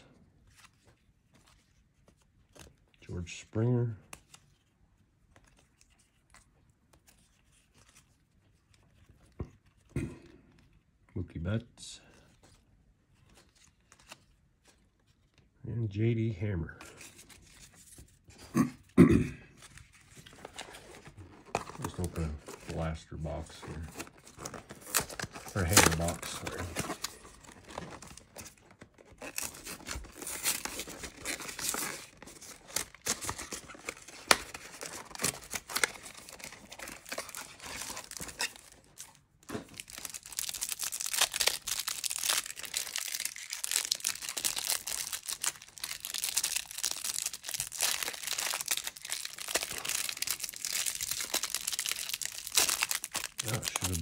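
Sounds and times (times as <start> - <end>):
plastic wrap crinkling and tearing: 19.6 - 54.0.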